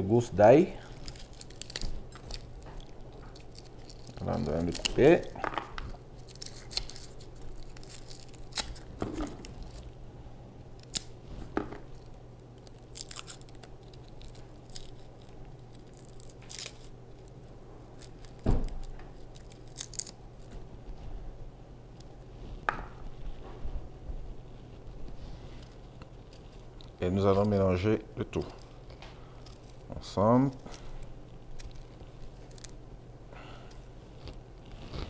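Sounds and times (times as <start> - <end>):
garlic skin crackling: 0.8 - 9.9, 10.7 - 11.2, 11.8 - 20.6, 25.5 - 32.9.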